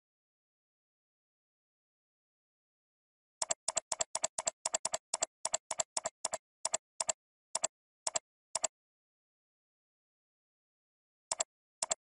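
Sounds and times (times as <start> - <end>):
computer mouse button clicks: 11.3 - 12.0.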